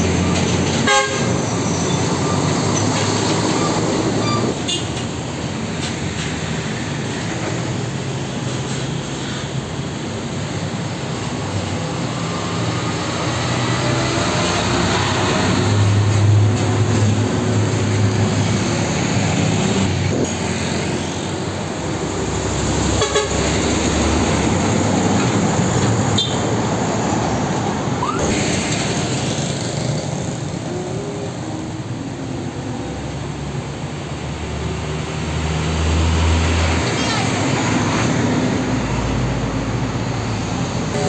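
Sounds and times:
diesel trucks driving past: 0.0s - 41.0s
tyre and traffic noise: 0.0s - 41.0s.

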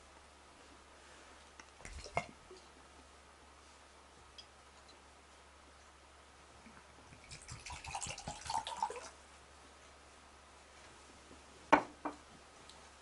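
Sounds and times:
water trickling into a cup: 7.2s - 9.2s.

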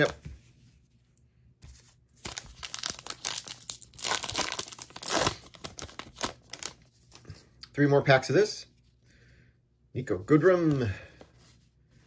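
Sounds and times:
wrapper tearing and crinkling: 2.2s - 6.9s.

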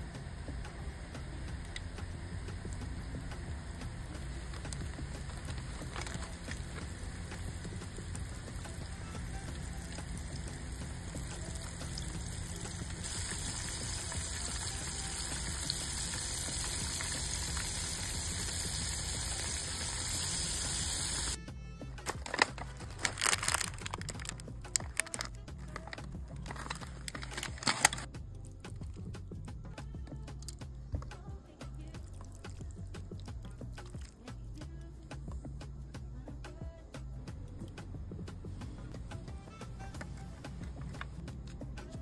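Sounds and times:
shrimp sizzling in hot oil: 1.5s - 21.4s.

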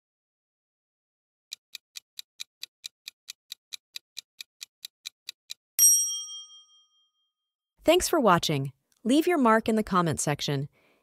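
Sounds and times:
clock-like timer ticks: 1.5s - 5.6s
bell-like ding: 5.8s - 7.3s.

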